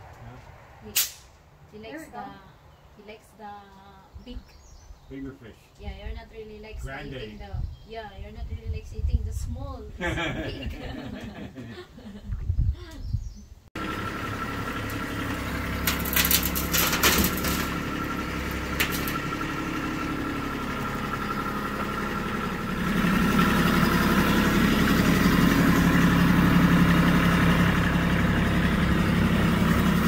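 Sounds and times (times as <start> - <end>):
tractor diesel engine running: 13.8 - 30.0.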